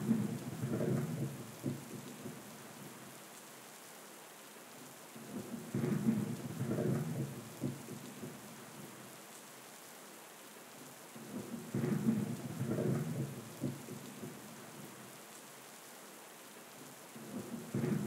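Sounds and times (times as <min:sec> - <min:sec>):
thunder rumbling: 0:00.0 - 0:01.8, 0:05.7 - 0:07.8, 0:17.3 - 0:18.0
rain hiss: 0:00.0 - 0:18.0.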